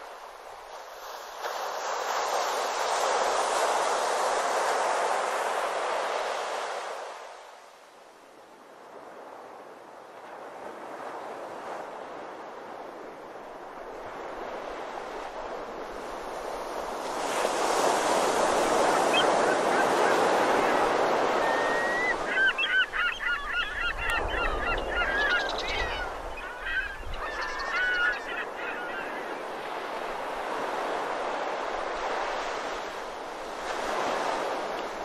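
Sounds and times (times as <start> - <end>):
surf washing on beach: 0.0 - 35.0
flock of birds calling: 17.7 - 30.9.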